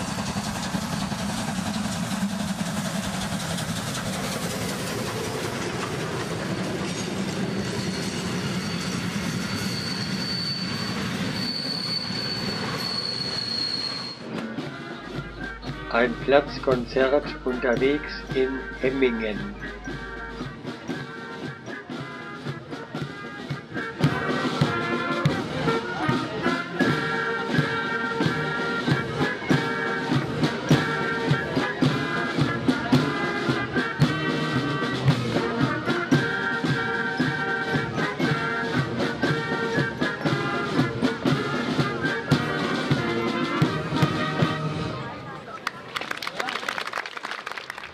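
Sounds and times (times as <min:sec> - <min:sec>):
wind instruments: 0:03.8 - 0:45.6
snare and bass drums: 0:14.3 - 0:44.8.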